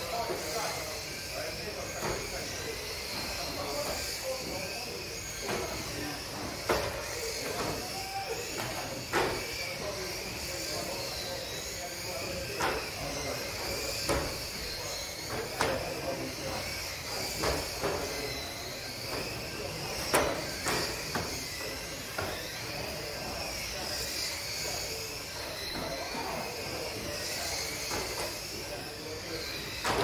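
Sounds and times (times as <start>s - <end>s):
model car electric motors whining: 0.0s - 30.0s.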